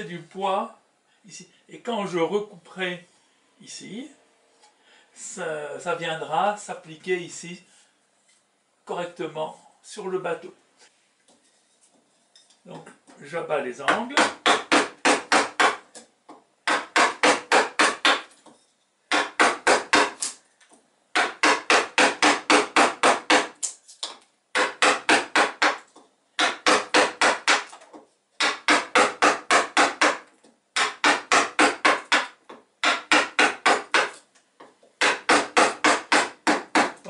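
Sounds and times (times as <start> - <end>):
wooden mallet tapping a gouge: 13.9 - 18.3, 24.6 - 27.8, 28.4 - 37.0.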